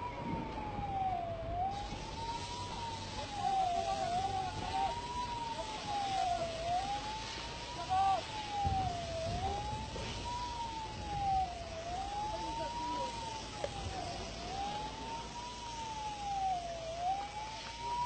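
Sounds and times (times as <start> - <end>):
low background rush: 0.0 - 18.0
siren wailing: 0.0 - 18.0.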